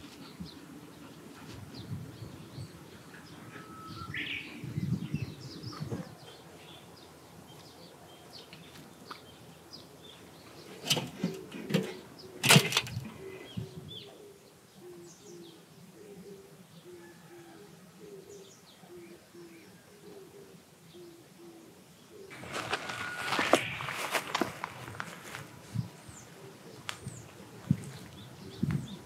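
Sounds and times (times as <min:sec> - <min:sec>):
small birds chirping: 0:00.0 - 0:17.4, 0:18.2 - 0:29.0
dove cooing: 0:02.6 - 0:06.8, 0:10.7 - 0:29.0.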